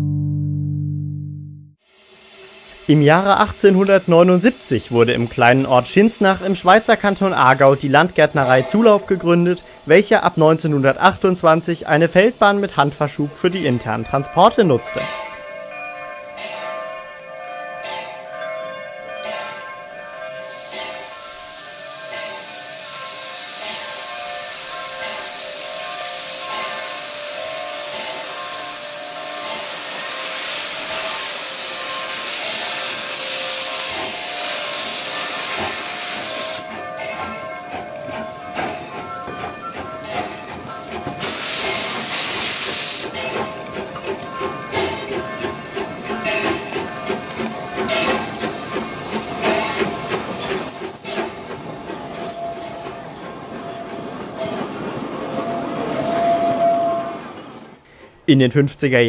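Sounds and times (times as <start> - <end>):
steam locomotive hissing steam: 1.8 - 58.6
wheel squeal: 34.9 - 58.6.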